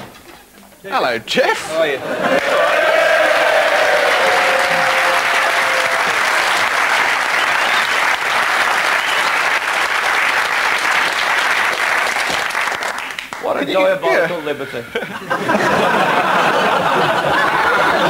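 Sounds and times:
audience applauding: 1.8 - 13.6, 15.5 - 18.0.

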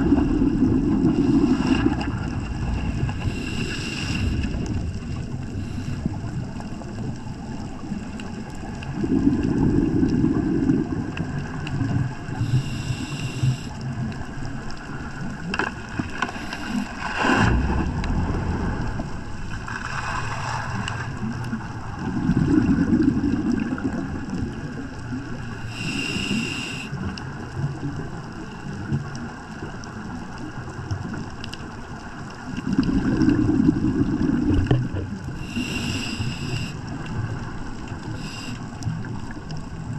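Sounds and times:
diver exhaling bubbles: 0.0 - 6.6, 8.9 - 14.1, 16.3 - 24.8, 32.5 - 39.5
regulator hiss: 3.2 - 4.4, 12.4 - 13.8, 25.6 - 27.0, 35.4 - 36.9, 38.0 - 38.8.

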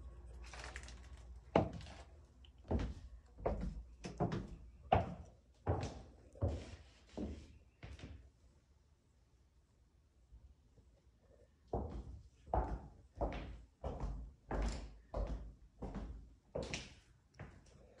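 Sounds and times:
footsteps on hardwood floor: 2.7 - 8.2.

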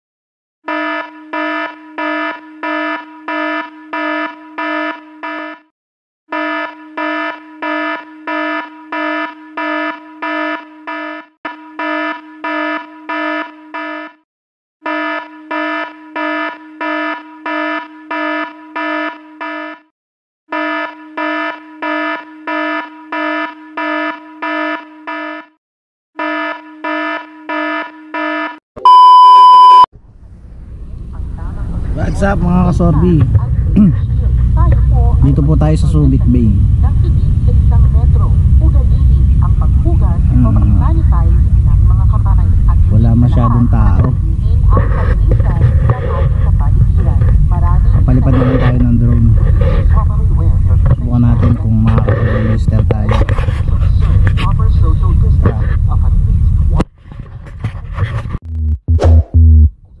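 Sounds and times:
steady test-tone beep: 0.7 - 5.6, 6.3 - 14.2, 26.2 - 29.9, 58.5 - 59.7
electronic alarm fast beeps: 0.7 - 5.7, 6.3 - 14.2, 14.8 - 19.9, 20.5 - 25.6, 26.2 - 29.9.

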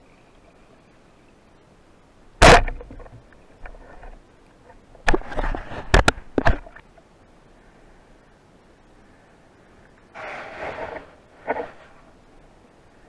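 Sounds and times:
speargun firing crack: 2.4 - 3.0.

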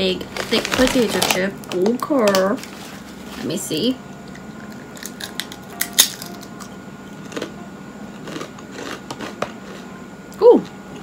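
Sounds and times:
potato chip crunching: 4.7 - 6.7, 7.3 - 7.5, 8.2 - 9.8.

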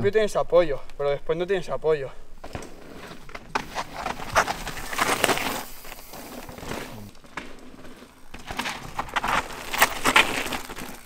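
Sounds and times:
bike tyres skidding on dirt: 2.4 - 11.0.

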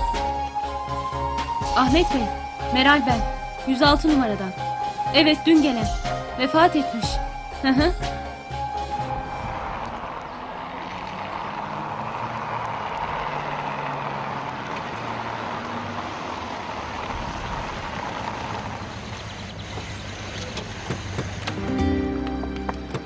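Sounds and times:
car driving up: 7.2 - 23.0.

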